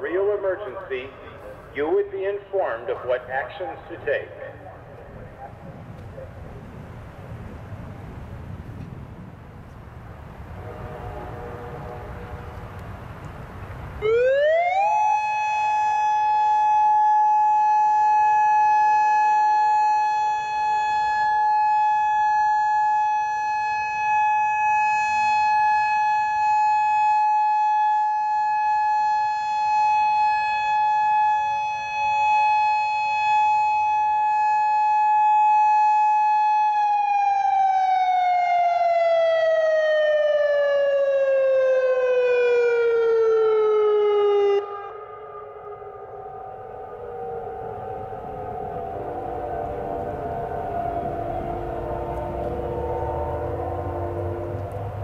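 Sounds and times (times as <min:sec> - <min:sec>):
electronic warning siren: 0:14.0 - 0:55.0.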